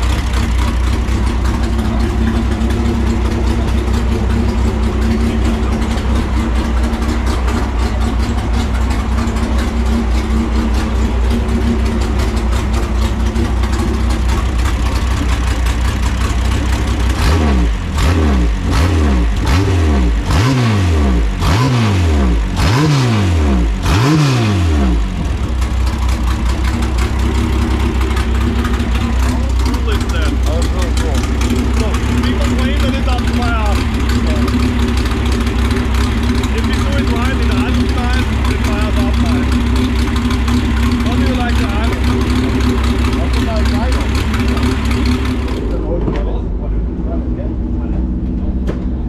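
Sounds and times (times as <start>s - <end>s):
engine idling and revving: 0.0s - 49.0s.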